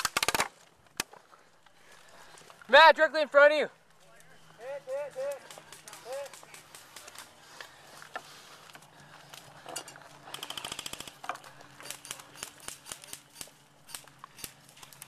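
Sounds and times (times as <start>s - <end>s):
airsoft gunfire burst: 10.3s - 11.2s.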